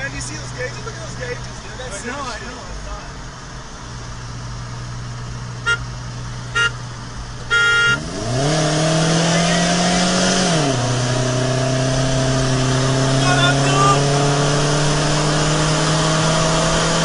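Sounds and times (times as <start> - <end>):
engine idling and revving: 0.0 - 17.0
horn toots: 5.6 - 6.8, 7.4 - 8.2.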